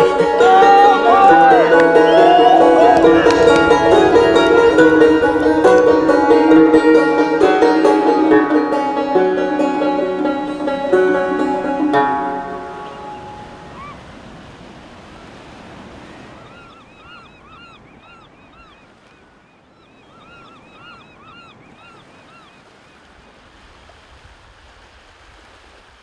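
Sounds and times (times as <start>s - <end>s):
banjo music: 0.0s - 13.6s
waves washing on shore: 0.0s - 18.2s, 21.2s - 26.0s.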